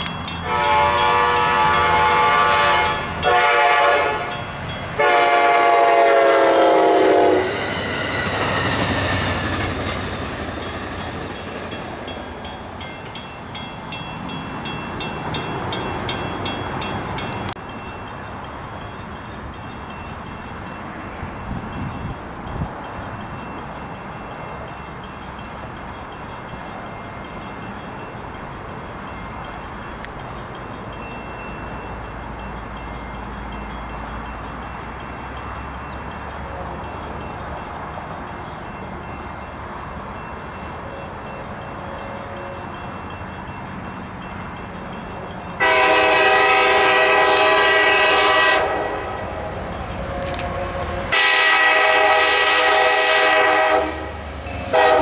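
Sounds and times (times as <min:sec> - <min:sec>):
locomotive rumble: 0:00.0 - 0:55.0
locomotive horn blast: 0:00.4 - 0:07.6, 0:45.6 - 0:55.0.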